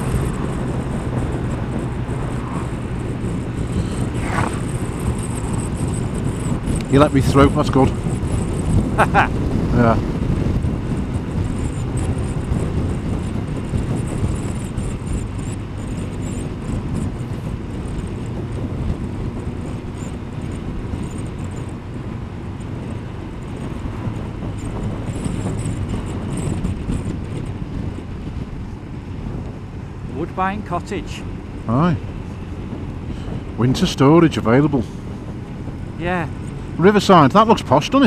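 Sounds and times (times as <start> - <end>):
motorcycle engine running: 0.0 - 38.0
road rumble: 0.0 - 38.0
wind noise over microphone: 0.0 - 38.0.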